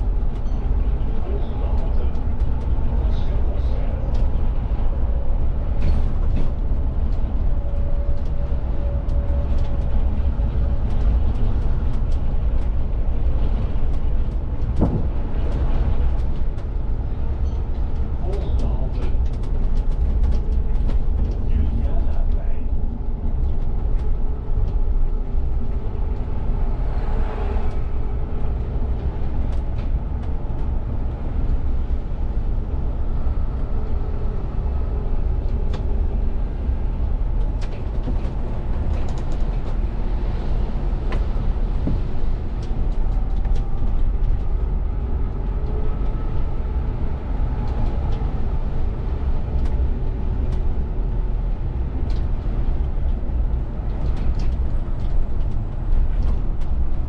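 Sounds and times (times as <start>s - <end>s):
bus engine and road rumble: 0.0s - 57.0s.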